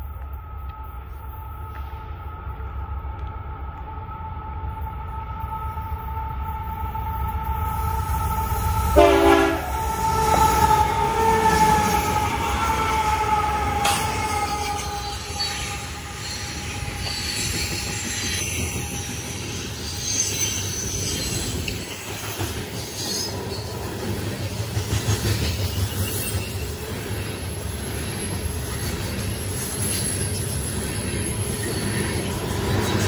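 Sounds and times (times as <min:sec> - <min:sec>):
train wheels rumbling on rail: 0:00.0 - 0:33.0
high-pitched wheel squeal: 0:09.6 - 0:22.0.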